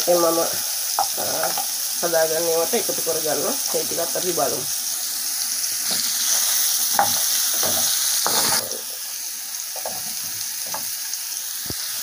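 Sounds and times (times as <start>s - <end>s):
vegetables sizzling in oil: 0.0s - 12.0s
spoon scraping and tapping pan: 5.8s - 8.8s, 9.8s - 11.0s.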